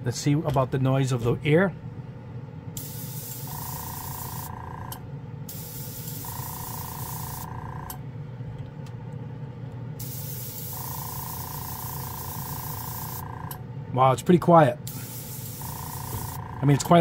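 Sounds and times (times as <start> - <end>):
low hum of compressor and fan: 0.0 - 17.0
airbrush hissing: 2.8 - 4.5, 5.5 - 7.5, 10.0 - 13.2, 14.9 - 16.4.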